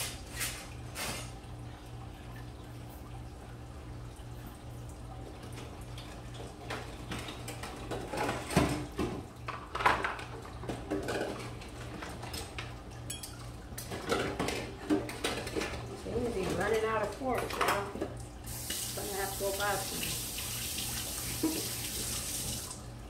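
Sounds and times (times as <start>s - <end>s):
dishes and cutlery clattering: 7.1s - 12.5s, 13.1s - 15.8s.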